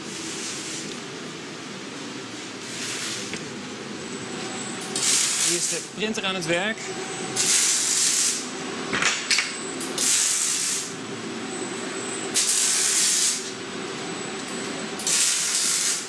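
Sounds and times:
steady hum: 0.0 - 16.0
welding arc hissing bursts: 4.9 - 5.9, 7.4 - 8.5, 10.0 - 10.9, 12.4 - 13.5, 15.0 - 16.0.

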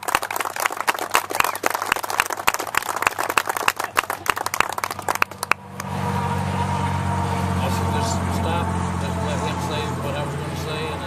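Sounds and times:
group of people applauding: 0.0 - 5.9.

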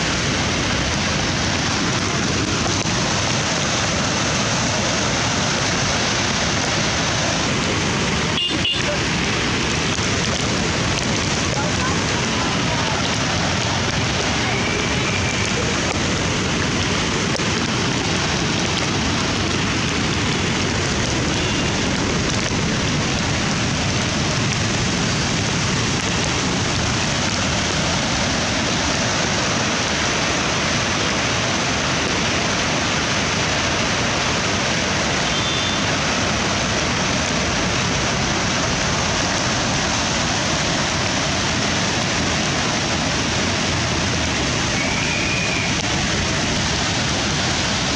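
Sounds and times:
falling rain: 0.0 - 47.9
rushing white water: 0.0 - 47.9.

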